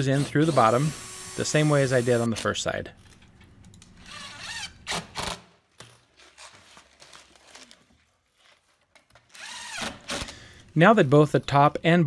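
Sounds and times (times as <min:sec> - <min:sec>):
drill motor whirring: 0:00.0 - 0:02.3, 0:09.4 - 0:09.9
faint handling sounds: 0:05.7 - 0:09.2.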